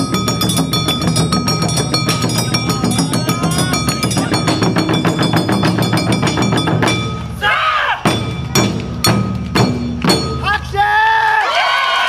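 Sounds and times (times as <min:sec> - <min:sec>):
metallic ringing: 0:00.0 - 0:07.4
barrel drums beaten fast: 0:00.0 - 0:10.8.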